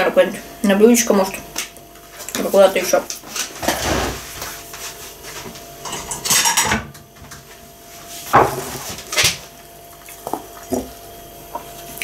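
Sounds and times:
dishes clattering: 0:05.8 - 0:06.9.

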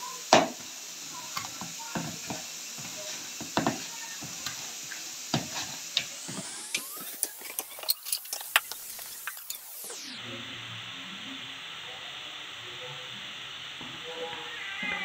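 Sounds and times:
steady hiss: 0:00.0 - 0:15.0
dough kneading thumps and squelches: 0:00.3 - 0:07.8.

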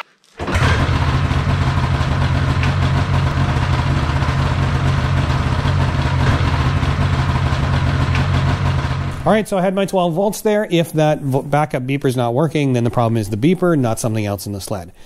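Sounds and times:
snowmobile engine idling: 0:00.4 - 0:09.4.

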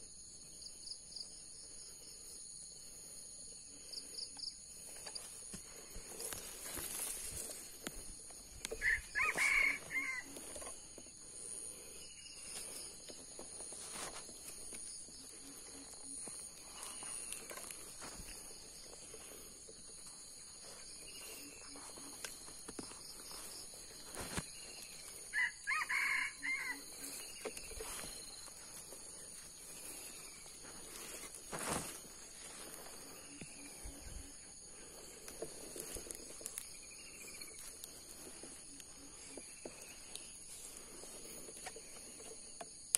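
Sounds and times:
high drone of insects: 0:00.0 - 0:42.9
rooster crowing: 0:08.8 - 0:10.5, 0:25.3 - 0:27.4.

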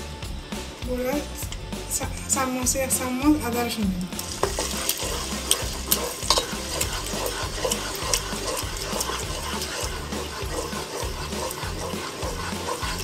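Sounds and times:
food sizzling: 0:00.0 - 0:13.0
spatula scraping a frying pan: 0:04.1 - 0:13.0.

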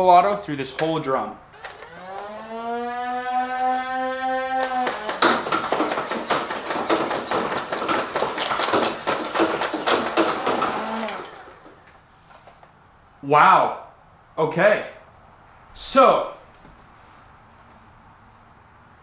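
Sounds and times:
flywheel motors whining: 0:01.6 - 0:12.0
toy blaster firing darts rapidly: 0:04.0 - 0:11.3.

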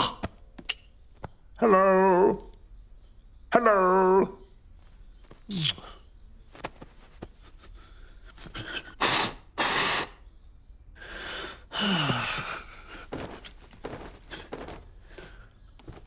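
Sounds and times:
loud hissy sneeze: 0:09.0 - 0:10.2
breathy gasping with groan: 0:11.0 - 0:13.2.

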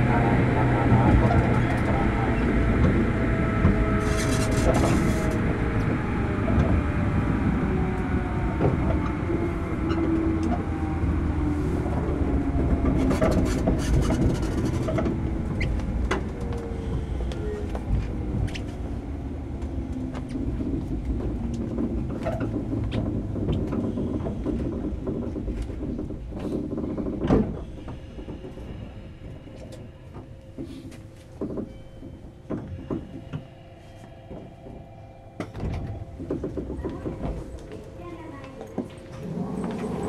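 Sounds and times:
train motor whine: 0:00.0 - 0:18.3, 0:31.7 - 0:40.0
wheels rumbling on rail: 0:00.0 - 0:40.0.

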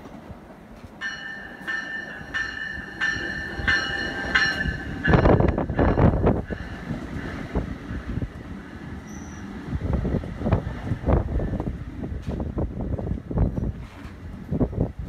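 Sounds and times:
train wheel and air noise: 0:00.0 - 0:15.0
train bell ringing: 0:01.0 - 0:09.6.

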